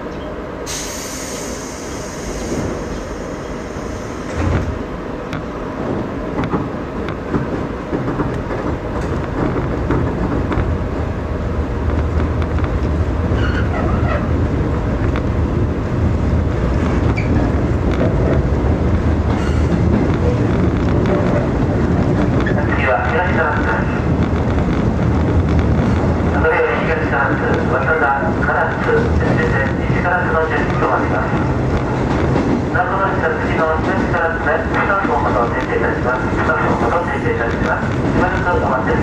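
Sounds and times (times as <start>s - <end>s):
train running noise: 0.0s - 39.0s
brief hiss: 0.7s - 4.4s.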